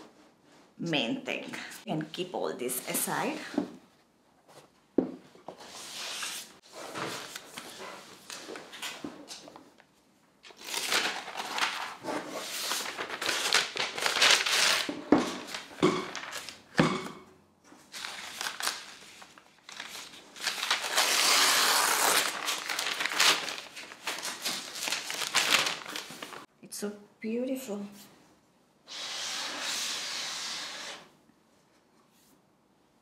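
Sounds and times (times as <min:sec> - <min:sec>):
plastic wrap crinkling: 0:10.5 - 0:16.6, 0:17.9 - 0:26.5.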